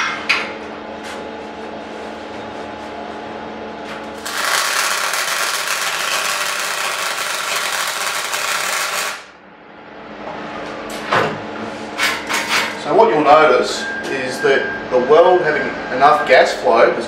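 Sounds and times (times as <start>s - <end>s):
steady low hum: 0.0s - 17.0s
welding arc crackling: 4.2s - 9.3s.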